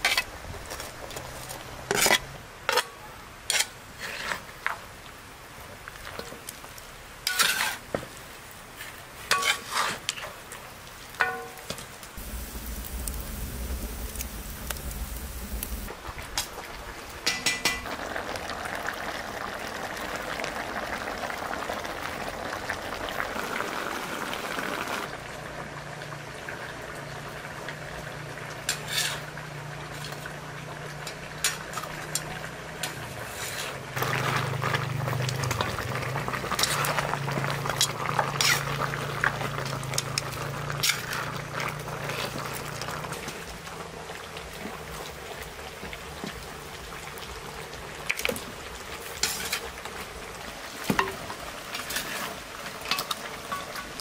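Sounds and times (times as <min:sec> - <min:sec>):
low steady hum: 0:12.2 - 0:15.9
broth boiling and bubbling: 0:12.2 - 0:54.0
metal spoon clinking on pan: 0:17.2 - 0:17.8.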